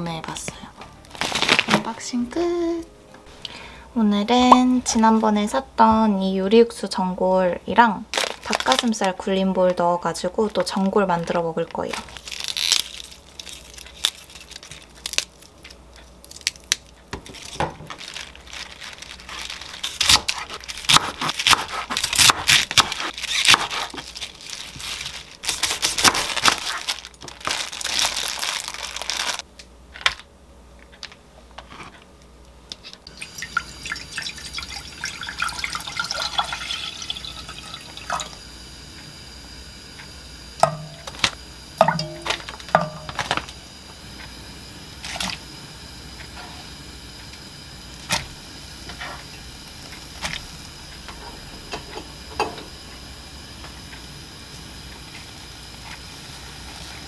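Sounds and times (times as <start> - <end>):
plastic crinkling: 1.1 - 2.0, 8.1 - 9.8, 10.4 - 29.4, 42.1 - 43.6
knife chopping on wooden board: 20.0 - 24.0
liquid pouring into saucepan: 33.1 - 38.4.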